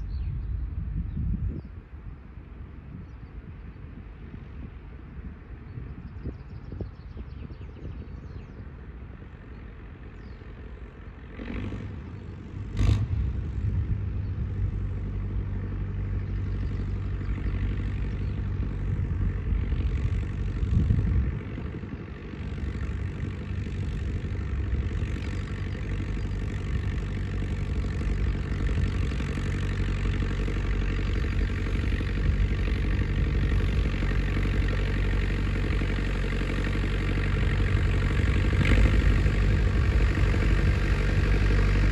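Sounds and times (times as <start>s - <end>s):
tractor diesel engine running: 0.0s - 41.9s.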